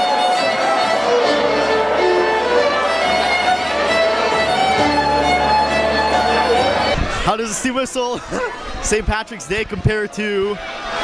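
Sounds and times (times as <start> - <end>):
fiddle melody: 0.0 - 7.7.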